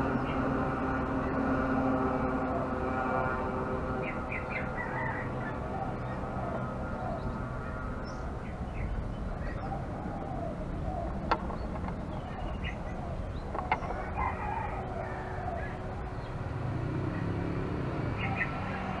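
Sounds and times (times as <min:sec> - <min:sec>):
dove cooing: 0:02.3 - 0:19.0.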